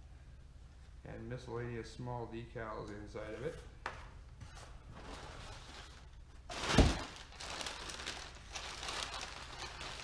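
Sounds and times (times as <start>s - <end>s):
packing paper rustling: 4.9s - 10.0s.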